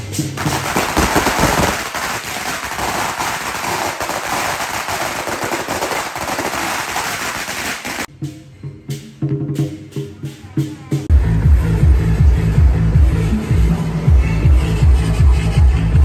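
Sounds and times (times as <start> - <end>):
firecrackers crackling: 0.0 - 8.1.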